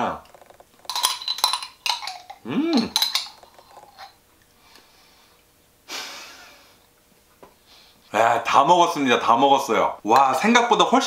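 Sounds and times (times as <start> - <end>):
spoon scraping glass jar: 0.9 - 4.2
person humming: 2.4 - 3.0.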